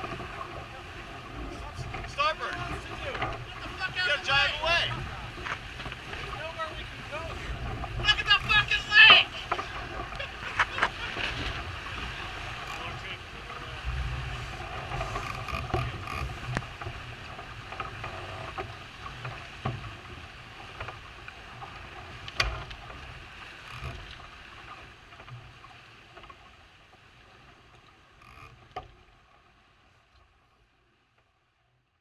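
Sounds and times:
water rushing past hull: 0.0 - 30.4
rigging clicks and knocks: 1.8 - 3.5, 14.9 - 17.0.

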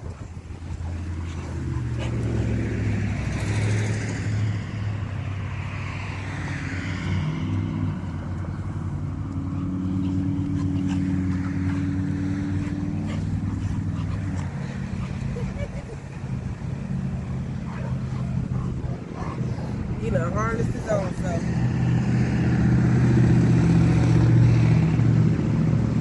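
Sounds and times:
vehicle engine running: 7.4 - 26.0.

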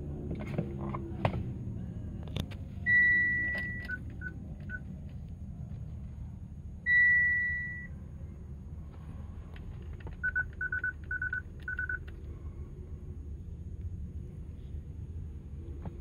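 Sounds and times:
low cabin hum: 0.0 - 16.0
dashboard warning chime: 2.8 - 4.8, 6.9 - 7.9
short beeps: 2.8 - 4.8, 6.8 - 7.9.

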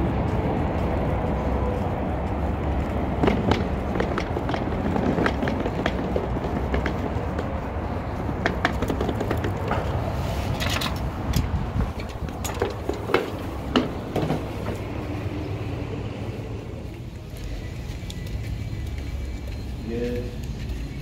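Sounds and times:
footsteps: 0.0 - 21.0
steady low rumble: 0.0 - 21.0
glass doors clunking and clicking: 10.6 - 16.6.

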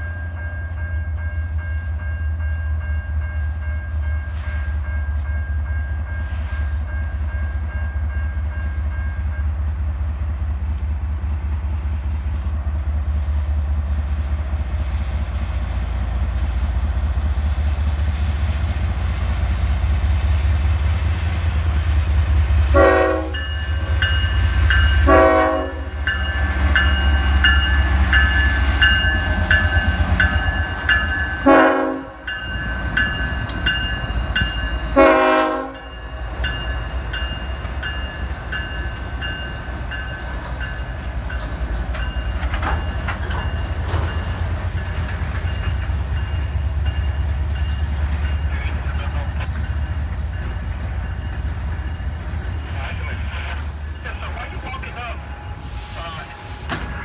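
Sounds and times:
diesel locomotive engines rumbling: 0.0 - 57.0
train horn blasts: 22.6 - 23.8, 24.9 - 26.1, 31.4 - 32.3, 34.9 - 36.0
bell ringing: 26.1 - 31.4.

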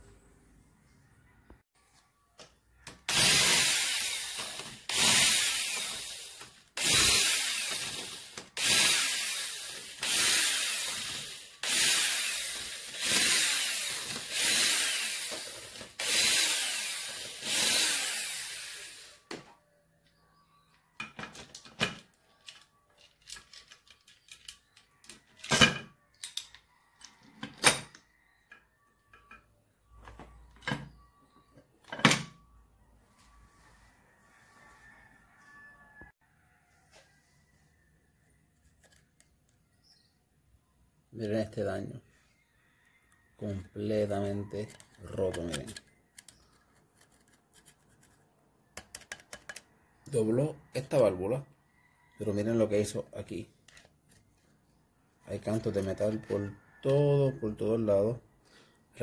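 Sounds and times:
cordless drill bursts: 3.1 - 19.3
clicks and knocks of parts handled: 20.0 - 29.5, 38.6 - 39.6, 44.7 - 49.7.

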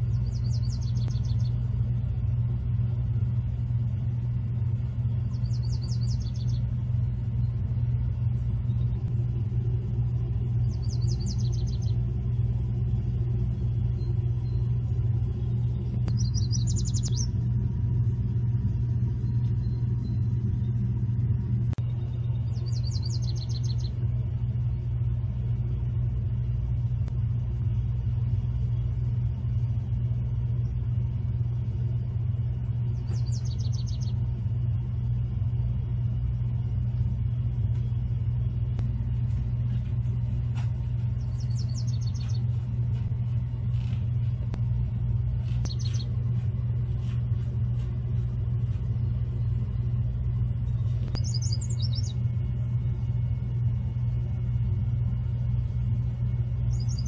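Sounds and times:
songbird singing: 0.0 - 2.5, 4.8 - 24.9, 32.3 - 35.1, 37.3 - 53.6, 56.2 - 57.0
steady low rumble: 0.0 - 57.0.

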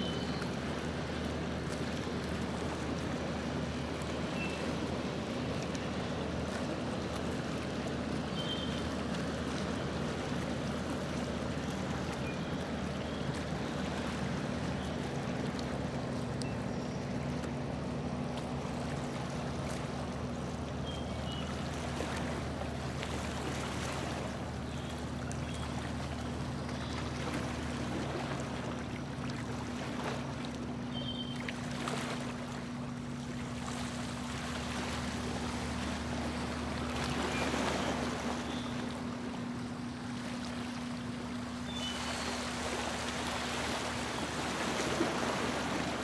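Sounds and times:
boat motor running: 0.0 - 46.0
water rushing: 0.0 - 46.0
wind: 0.0 - 46.0.

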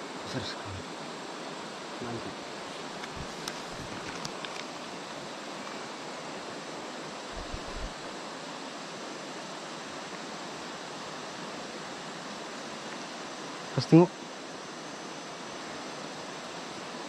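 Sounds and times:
soft low bumps: 7.4 - 7.9.

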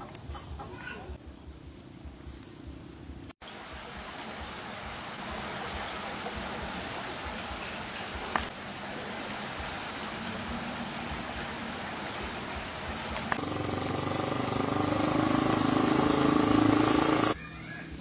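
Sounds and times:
floodwater rushing: 3.4 - 17.4
engine running: 12.6 - 17.4.

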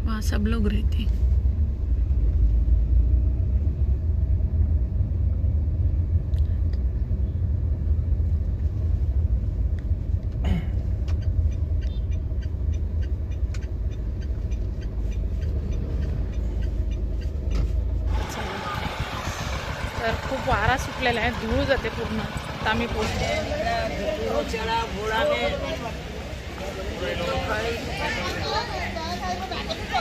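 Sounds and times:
faint ticking: 11.0 - 23.0.

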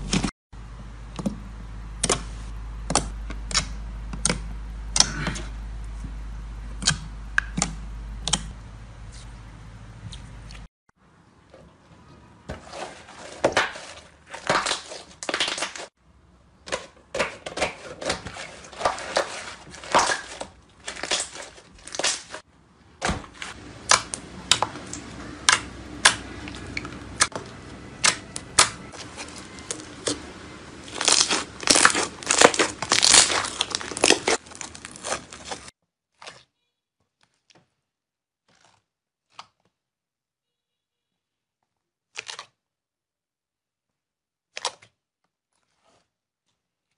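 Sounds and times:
slime squeezed popping and crackling: 30.8 - 36.4.

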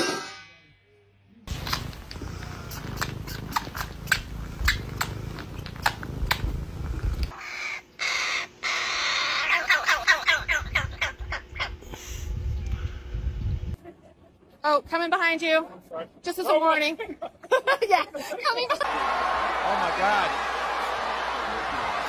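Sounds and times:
crow chick harsh begging calls: 7.4 - 11.7.

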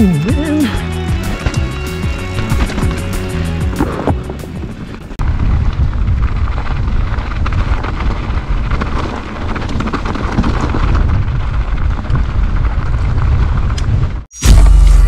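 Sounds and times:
bike rattling over rough ground: 1.1 - 14.3
wind buffeting microphone: 3.8 - 14.3.

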